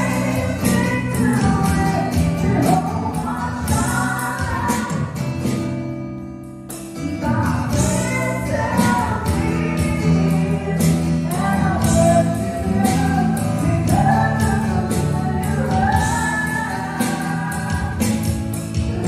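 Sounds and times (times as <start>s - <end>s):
acoustic guitar: 0.0s - 19.0s
drums: 0.0s - 19.0s
electric bass: 0.0s - 19.0s
voices singing together: 7.7s - 19.0s.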